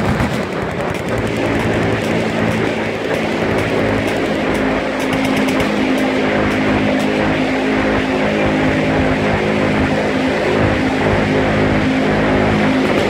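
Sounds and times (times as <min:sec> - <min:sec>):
machine guns firing automatic: 0:00.0 - 0:07.1.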